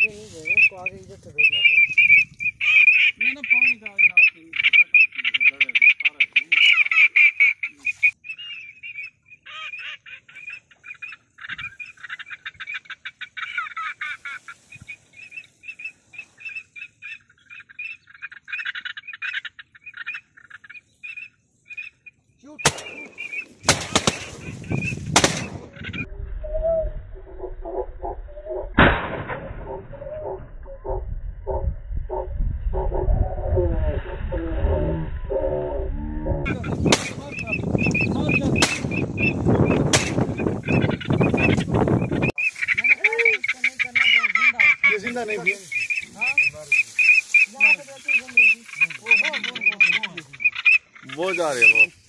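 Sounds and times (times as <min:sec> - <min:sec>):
duck calling: 0:00.0 - 0:26.1, 0:34.2 - 0:52.0
shotgun shots: 0:22.6 - 0:25.8, 0:28.8 - 0:29.7, 0:36.8 - 0:37.4, 0:38.6 - 0:39.0, 0:39.9 - 0:40.4.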